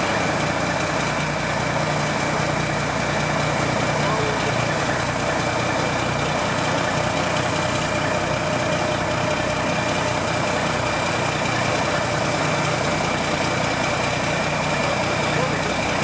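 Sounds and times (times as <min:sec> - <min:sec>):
fire engine motor and pump running: 0:00.0 - 0:16.0
hose spraying water: 0:00.0 - 0:16.0.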